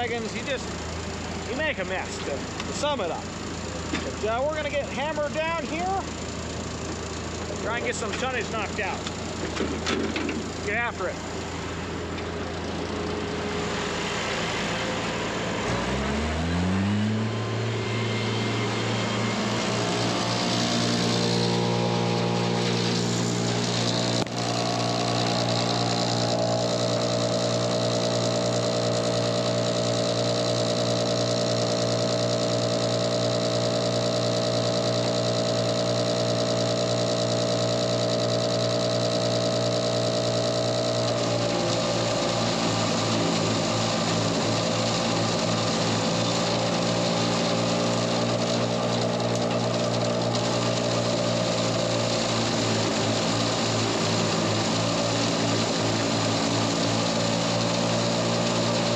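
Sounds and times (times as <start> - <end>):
silage blower mechanical drone: 10.6 - 58.9.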